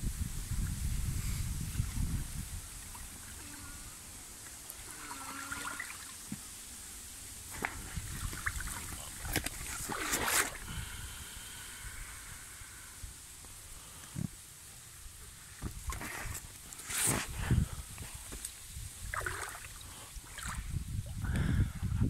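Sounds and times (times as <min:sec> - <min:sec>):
river water trickling: 0:01.6 - 0:17.1, 0:17.8 - 0:21.3
rushing splash: 0:04.8 - 0:06.8, 0:07.5 - 0:10.7.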